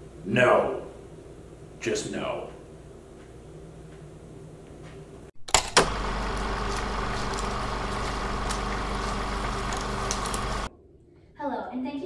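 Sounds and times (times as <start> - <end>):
low hum with hiss: 0.0 - 12.0
sharp clicks: 5.4 - 10.7
crackles: 5.8 - 10.7.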